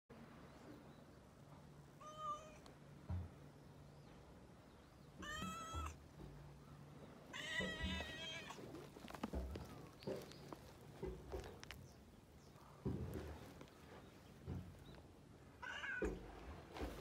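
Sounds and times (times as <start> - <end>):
cat meowing: 2.0 - 2.6, 5.2 - 6.0, 7.3 - 8.6, 15.6 - 16.2.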